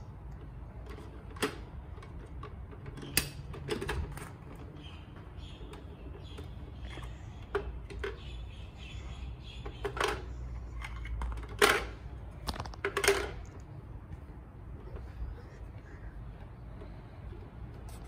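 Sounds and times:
plastic toy pieces clacking: 10.8s - 13.5s.

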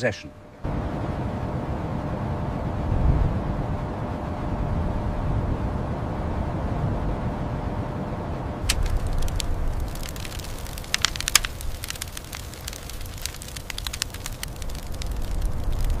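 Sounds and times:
low wind-like rumble: 0.3s - 16.0s
sharp crackling clicks: 8.6s - 16.0s.

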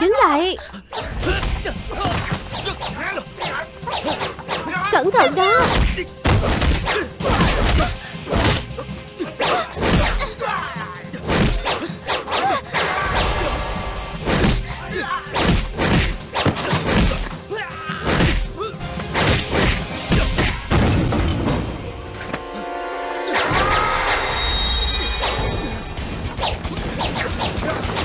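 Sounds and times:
action music: 0.0s - 28.0s
punch and kick hits: 5.6s - 8.7s, 9.8s - 10.2s, 11.2s - 11.8s, 14.2s - 14.7s, 15.3s - 17.4s, 18.0s - 21.7s.

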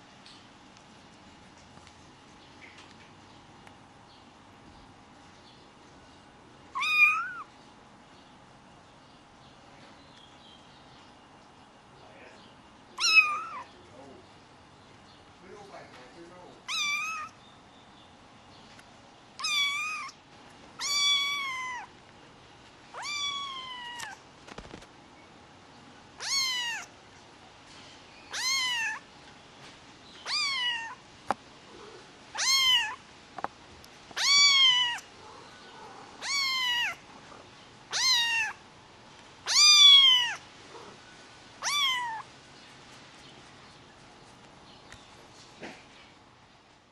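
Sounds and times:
kitten meowing: 6.8s - 7.5s, 13.0s - 13.7s, 16.7s - 17.4s, 19.4s - 20.2s, 20.8s - 21.9s, 22.9s - 24.2s, 26.2s - 26.9s, 28.3s - 29.0s, 30.2s - 31.0s, 32.4s - 33.0s, 34.2s - 35.0s, 36.2s - 37.0s, 37.9s - 38.6s, 39.4s - 40.4s, 41.6s - 42.3s.

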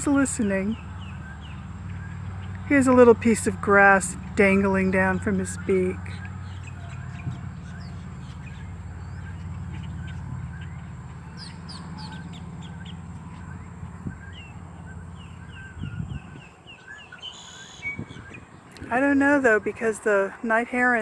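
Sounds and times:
birds chirping: 0.0s - 21.0s
low rumble: 0.8s - 17.1s.

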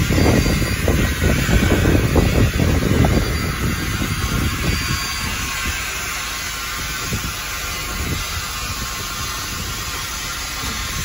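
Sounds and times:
low rumbling: 0.0s - 11.0s
steam hissing: 0.0s - 11.0s.

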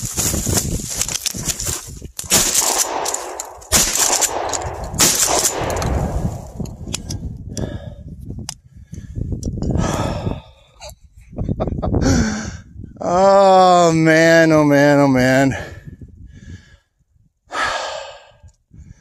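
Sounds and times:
shotgun shots with echo: 2.3s - 6.9s.

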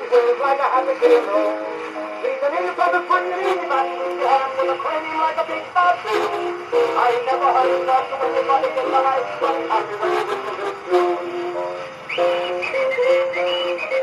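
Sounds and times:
man singing on old gramophone record: 0.0s - 14.0s.

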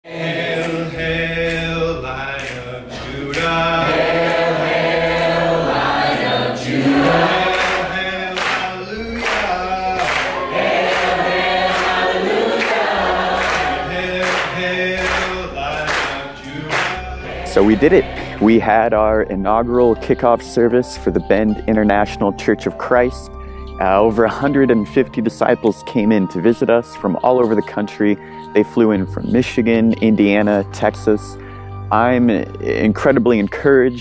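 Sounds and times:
voices singing together: 0.0s - 19.9s
sustained bass notes: 0.4s - 34.0s
percussion hits: 6.7s - 21.3s.

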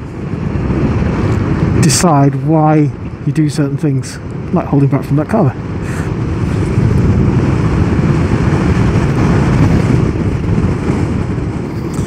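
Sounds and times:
motorcycle tyre noise: 0.0s - 12.0s
wind on microphone: 0.0s - 12.0s.

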